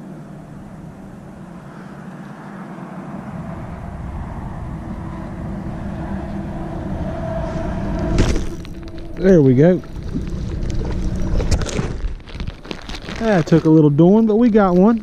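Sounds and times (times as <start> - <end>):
passing vehicle engine drone: 0.0 - 12.0.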